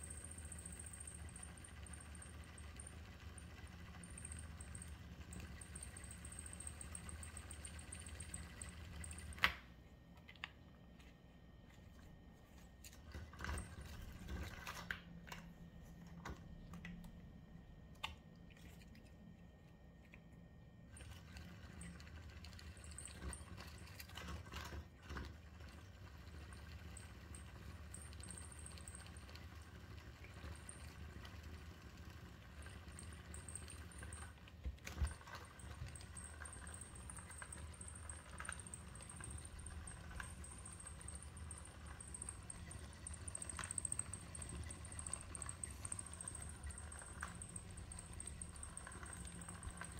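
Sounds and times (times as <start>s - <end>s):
small electric motor humming: 0.0s - 9.4s, 35.1s - 49.9s.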